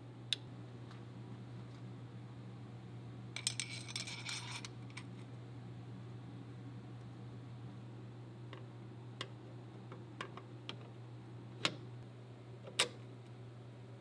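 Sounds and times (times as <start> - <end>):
steady low hum: 0.0 - 14.0
metal parts clinking and rattling: 3.4 - 4.7.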